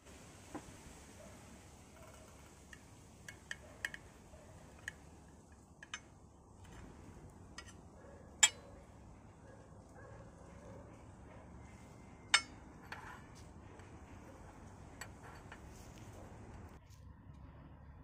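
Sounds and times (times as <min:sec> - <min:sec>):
metal spatula clinking on plate: 0:08.4 - 0:08.7, 0:12.3 - 0:13.2.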